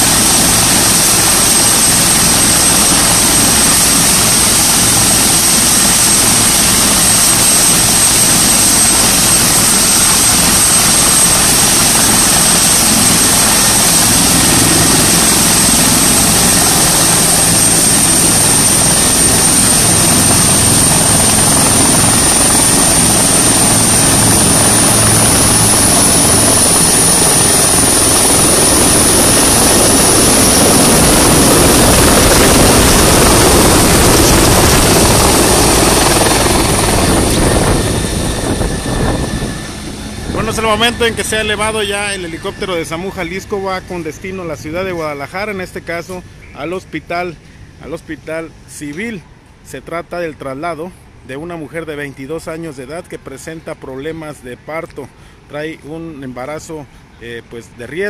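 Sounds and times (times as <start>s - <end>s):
helicopter rotor noise: 0.0s - 58.0s
helicopter turbine whine: 0.0s - 58.0s.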